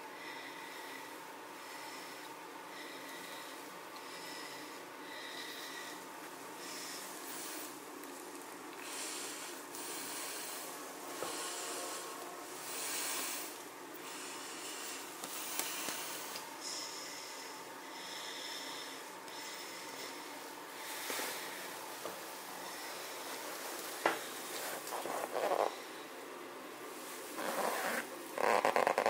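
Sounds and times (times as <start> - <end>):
person breathing hard: 0.1 - 7.8, 8.8 - 26.2.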